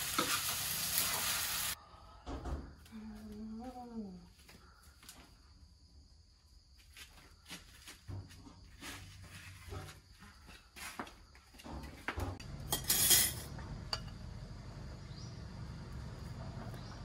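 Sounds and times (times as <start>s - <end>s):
plates and cutlery clinking: 12.6s - 14.2s.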